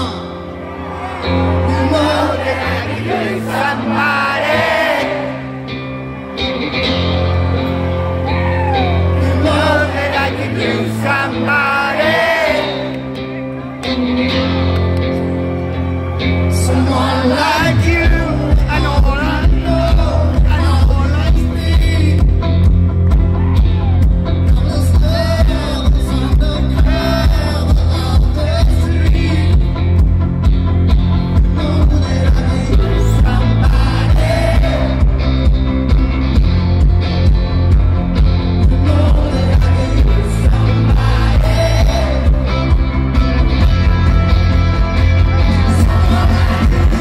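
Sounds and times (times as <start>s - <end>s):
man singing lead: 0.0s - 0.4s, 1.4s - 5.5s, 8.3s - 13.2s, 16.4s - 22.6s, 23.8s - 30.0s, 31.3s - 35.6s, 38.5s - 47.0s
live rock band: 0.0s - 47.0s.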